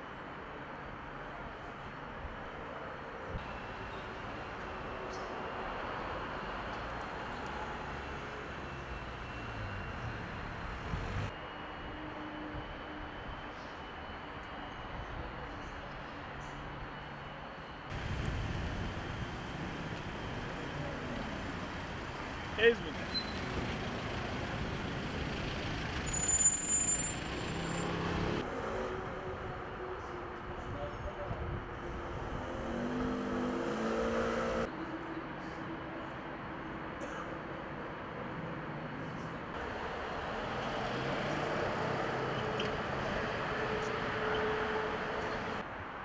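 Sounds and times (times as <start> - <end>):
distant traffic: 0.1 - 46.0
thin high squeal: 26.1 - 28.0.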